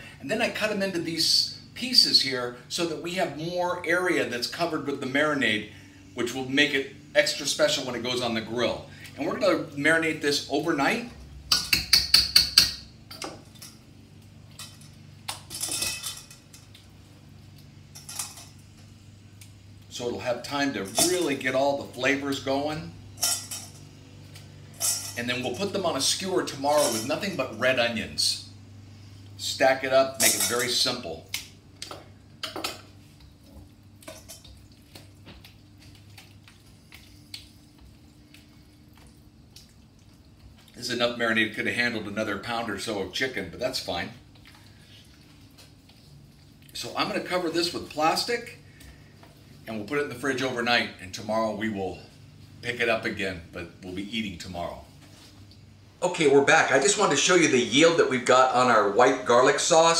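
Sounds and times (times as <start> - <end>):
wet squishing of marinade: 33.1 - 49.6.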